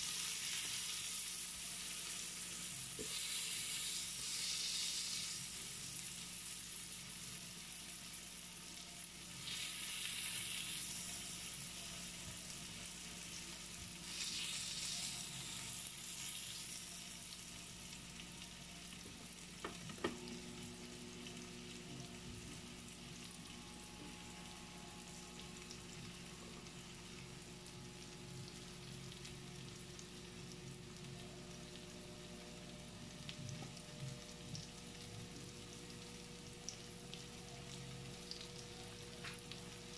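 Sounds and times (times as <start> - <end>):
meat sizzling on a grill: 0.0 - 39.9.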